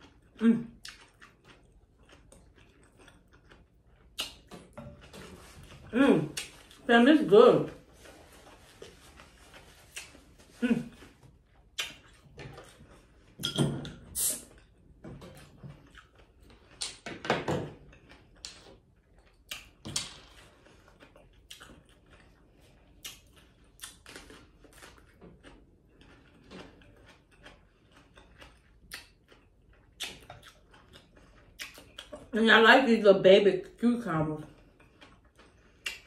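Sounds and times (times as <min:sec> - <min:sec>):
mouth smacks while eating: 0:04.1 - 0:04.6, 0:09.8 - 0:11.1, 0:11.7 - 0:12.3, 0:13.4 - 0:14.6, 0:16.8 - 0:17.0, 0:19.4 - 0:20.1, 0:23.0 - 0:24.1, 0:29.9 - 0:30.6, 0:31.6 - 0:32.2, 0:35.8 - 0:36.0.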